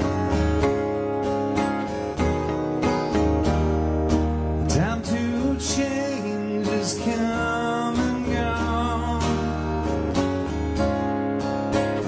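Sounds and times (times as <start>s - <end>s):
acoustic guitar picked melody: 0.0s - 12.0s
acoustic guitar strummed chords: 0.0s - 12.0s.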